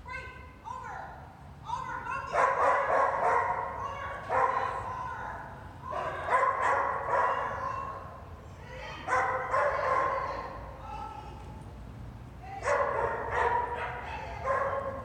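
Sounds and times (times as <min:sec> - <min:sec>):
dog barking and yipping: 0:02.3 - 0:04.8, 0:06.0 - 0:08.0, 0:09.1 - 0:10.3, 0:12.6 - 0:15.0.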